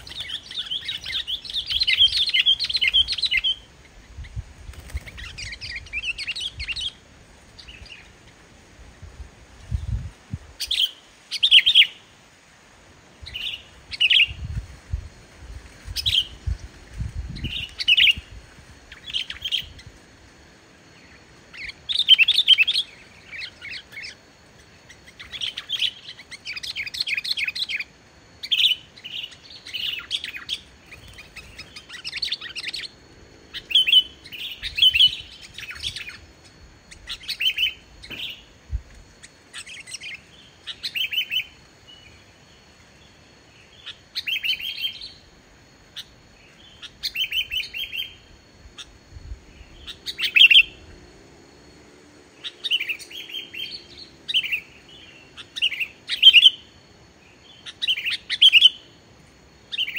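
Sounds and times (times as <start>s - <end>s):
bird singing chirps and whistles: 0.0s - 7.0s, 10.6s - 12.0s, 13.2s - 14.5s, 21.5s - 36.2s, 36.9s - 38.5s, 39.5s - 42.1s, 43.7s - 45.2s, 46.0s - 48.2s, 52.4s - 56.7s, 57.4s - 58.9s.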